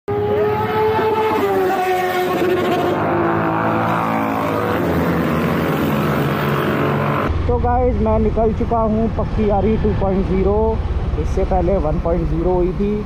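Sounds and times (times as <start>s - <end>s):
motorcycles whining past: 0.1s - 7.3s.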